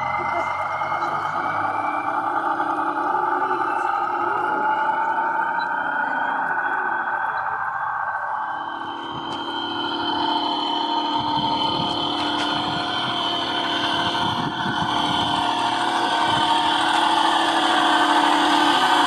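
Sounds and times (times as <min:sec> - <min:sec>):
model truck motors humming: 0:00.0 - 0:19.0.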